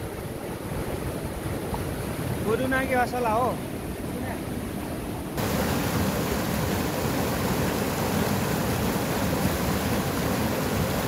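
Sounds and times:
river rapids rushing over rocks: 5.4s - 11.0s.

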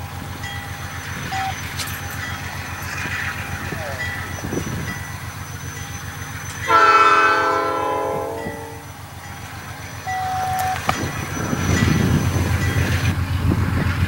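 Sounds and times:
diesel engine running: 0.0s - 14.0s
locomotive air horn blast: 6.7s - 8.9s.

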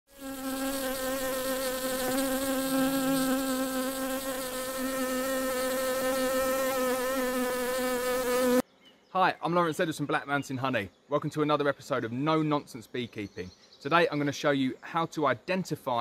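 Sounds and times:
bees buzzing: 0.1s - 8.6s.

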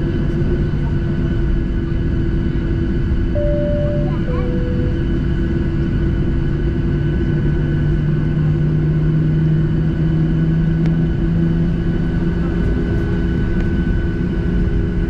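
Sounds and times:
jet engines idling rumble: 0.0s - 5.5s
engine whine: 0.0s - 15.0s.

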